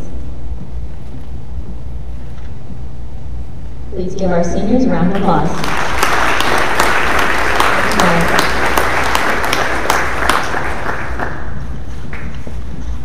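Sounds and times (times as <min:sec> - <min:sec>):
audience applauding: 0:05.2 - 0:12.4.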